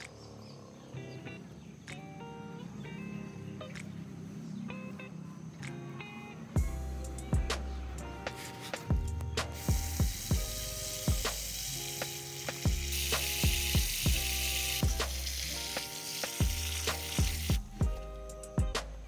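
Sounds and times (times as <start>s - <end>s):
background music with steady beat: 1.7s - 19.0s
pressure sprayer hissing: 6.6s - 18.0s.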